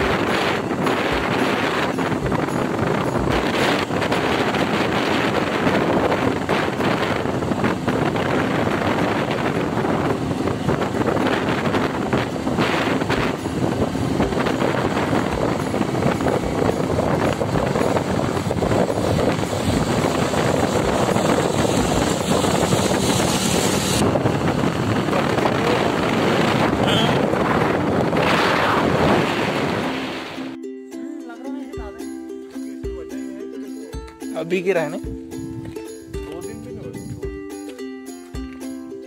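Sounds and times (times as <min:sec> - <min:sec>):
motorcycle engine and tyres: 0:00.0 - 0:30.6
wind rushing over microphone: 0:00.0 - 0:30.6, 0:35.0 - 0:37.5.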